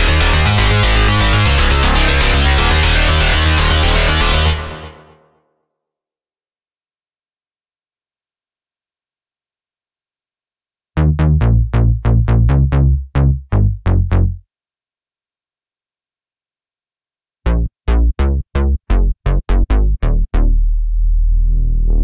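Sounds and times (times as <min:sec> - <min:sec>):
plucky synth bass notes: 0:00.0 - 0:05.0, 0:11.0 - 0:14.4, 0:17.5 - 0:22.0.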